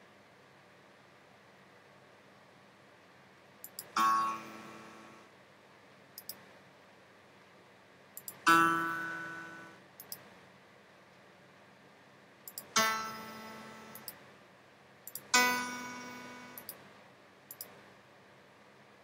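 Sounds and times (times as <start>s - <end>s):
mouse clicks: 6.2s - 6.4s, 10.0s - 10.3s, 17.5s - 17.8s
piano note: 15.4s - 16.6s.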